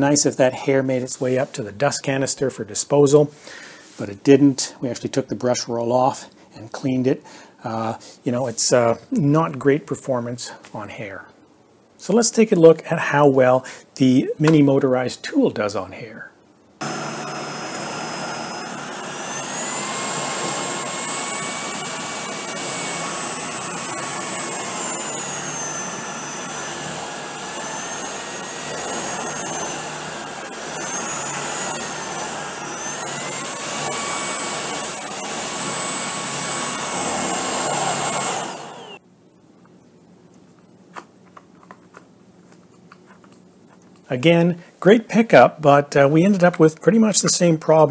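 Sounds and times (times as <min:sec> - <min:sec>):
vacuum cleaner motor whine: 0:16.8 - 0:39.0.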